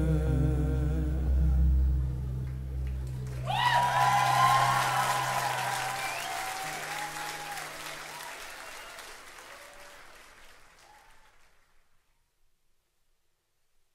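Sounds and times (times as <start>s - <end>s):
low steady tone: 0.0s - 3.4s
audience applauding: 2.8s - 12.0s
crowd shouts: 3.4s - 10.0s.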